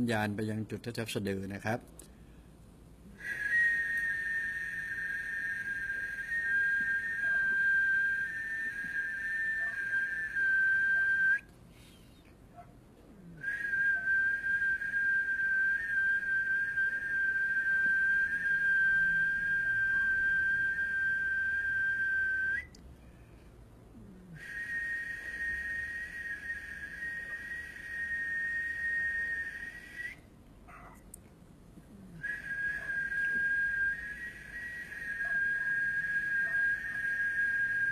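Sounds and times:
person whistling high notes: 3.2 - 11.5, 13.4 - 22.7, 24.4 - 30.2, 32.2 - 37.9.

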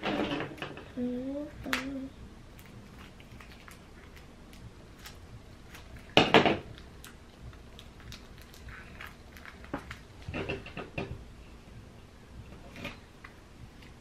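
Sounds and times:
paper and tape crinkling: 2.6 - 10.6.

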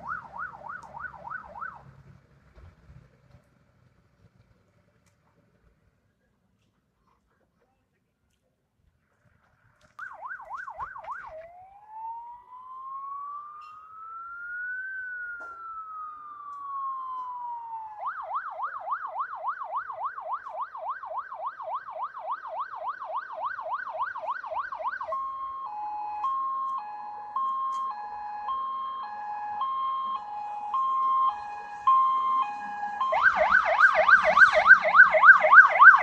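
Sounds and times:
fire engine siren: 0.0 - 2.1, 10.0 - 36.0.

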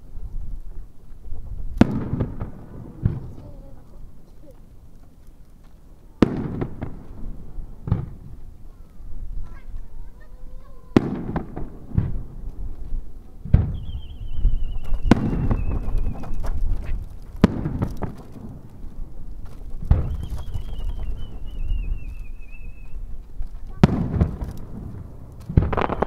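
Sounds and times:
firework shells booming: 1.6 - 3.9, 6.2 - 8.7, 10.9 - 12.6, 13.4 - 22.6, 23.4 - 26.0
whistling firework shells: 13.5 - 18.8, 19.6 - 26.0.

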